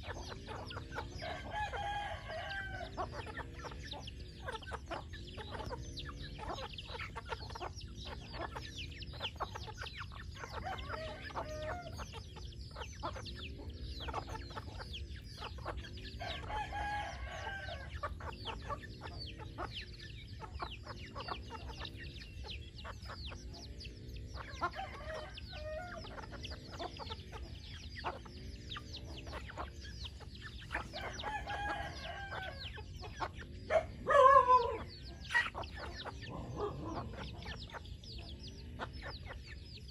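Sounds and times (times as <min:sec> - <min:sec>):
chickens clucking: 0:00.0 - 0:39.9
rooster crowing: 0:01.1 - 0:03.1, 0:10.5 - 0:12.0, 0:16.2 - 0:18.1, 0:24.7 - 0:26.3, 0:30.8 - 0:32.9, 0:33.7 - 0:35.1.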